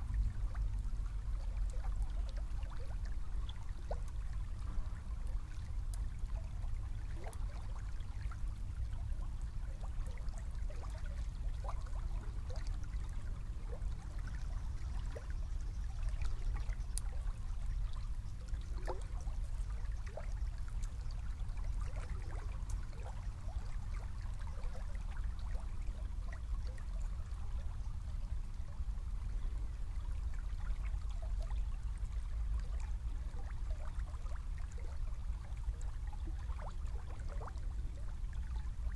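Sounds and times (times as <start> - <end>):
small river flowing: 0.0 - 38.9.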